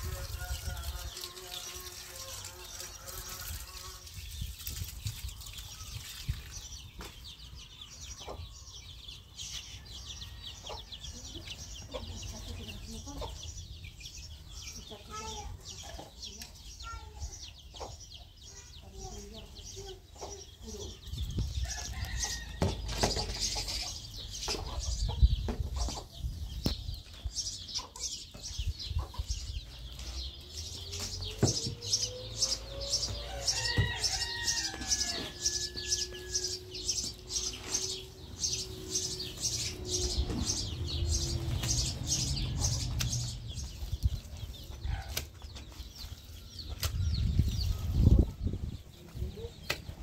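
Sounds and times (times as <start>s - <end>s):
chicken calling: 31.8s - 40.4s
shovel scraping soil and straw: 35.1s - 38.4s.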